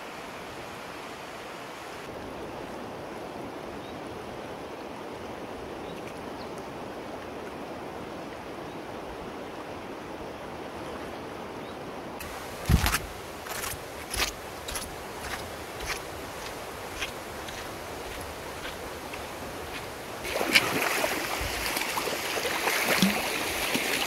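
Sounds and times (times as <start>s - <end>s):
river rushing over stones: 6.7s - 24.0s.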